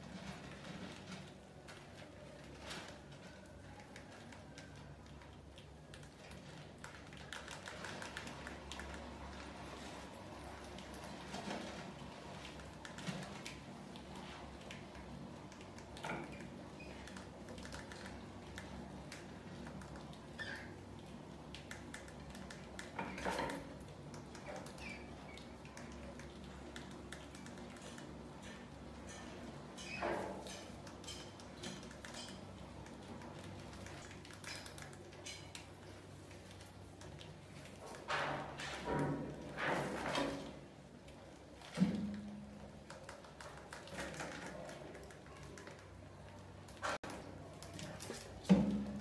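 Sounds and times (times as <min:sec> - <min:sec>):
rats scratching and clicking: 0:00.0 - 0:48.5.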